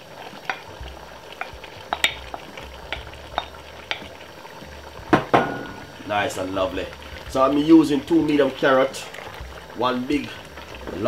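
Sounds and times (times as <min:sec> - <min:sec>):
pot sizzling: 0:00.0 - 0:11.0
wooden spoon knocking on plate: 0:05.1 - 0:05.9.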